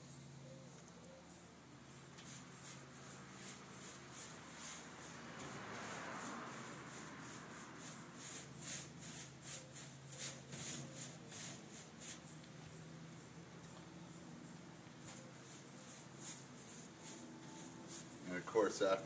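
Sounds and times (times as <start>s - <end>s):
paintbrush swishing on wet glaze: 2.2s - 12.2s, 15.1s - 18.6s.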